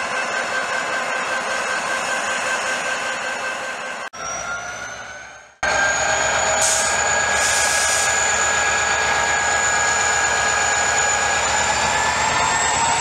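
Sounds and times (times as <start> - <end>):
locomotive engine whine and rumble: 0.0 - 13.0
brief air hisses: 6.6 - 8.2.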